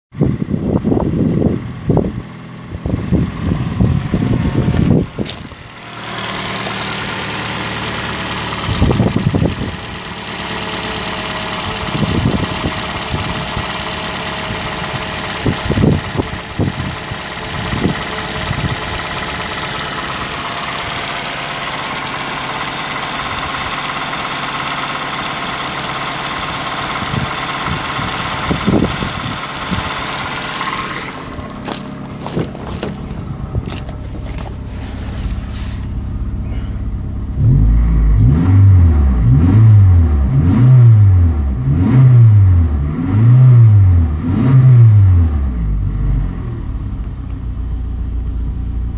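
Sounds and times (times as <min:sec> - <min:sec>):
low rumbling thumps: 0:00.2 - 0:05.8, 0:30.8 - 0:40.6
car engine idling: 0:00.2 - 0:48.9.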